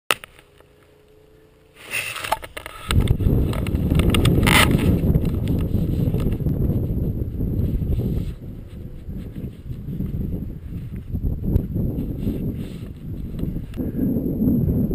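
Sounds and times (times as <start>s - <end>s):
camera handling rustling and clicking: 1.9s - 6.8s
wind buffeting microphone: 2.5s - 14.9s.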